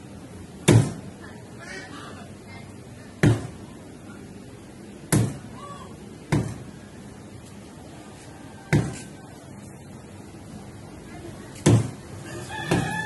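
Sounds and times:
cleaver chopping on wooden block: 0:00.7 - 0:01.0, 0:08.7 - 0:09.0, 0:11.6 - 0:12.0, 0:12.7 - 0:13.0.

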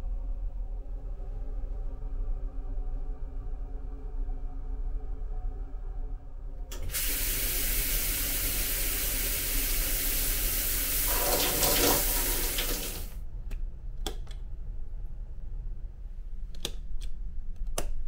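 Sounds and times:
shower spraying water on wall: 0:06.8 - 0:13.1.

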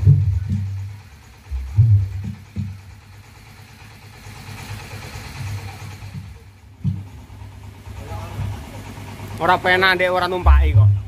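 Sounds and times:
low drum thumps: 0:00.0 - 0:03.0, 0:05.4 - 0:08.6, 0:10.4 - 0:11.0.

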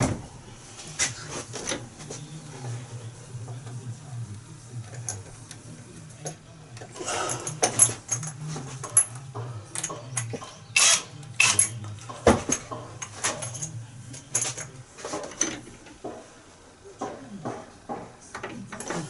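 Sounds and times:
metal tools clinking and tapping: 0:04.8 - 0:16.3.

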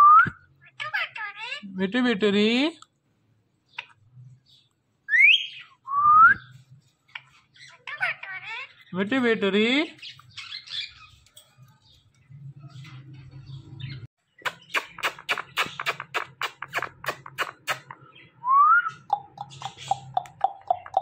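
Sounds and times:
kissing smacks: 0:14.4 - 0:18.0
parakeet chirps: 0:14.4 - 0:21.0.

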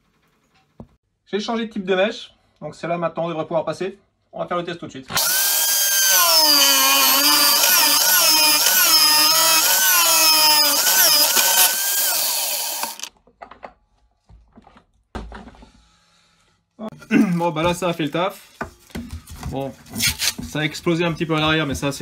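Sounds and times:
electric drill boring through wood: 0:05.2 - 0:13.1.

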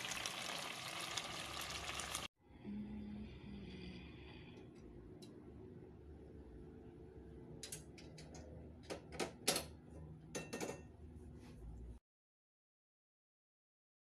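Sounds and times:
low steady hum: 0:02.4 - 0:12.0
clinks and knocks of dishware: 0:08.9 - 0:10.9.

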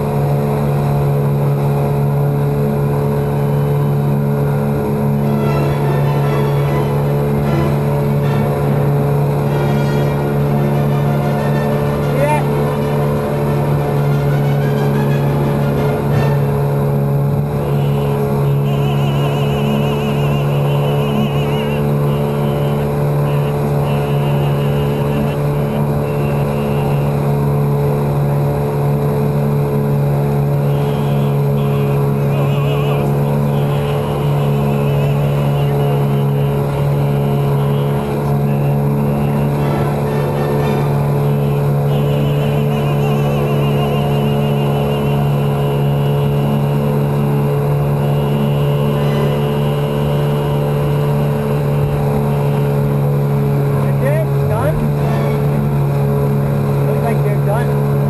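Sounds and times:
outboard engine at full throttle: 0:00.0 - 0:58.0.

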